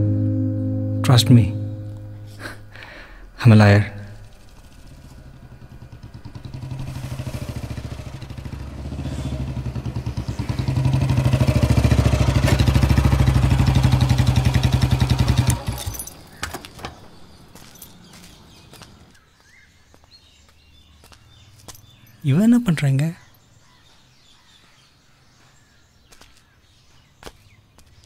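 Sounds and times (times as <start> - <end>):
motorcycle engine pulsing: 3.8 - 16.2.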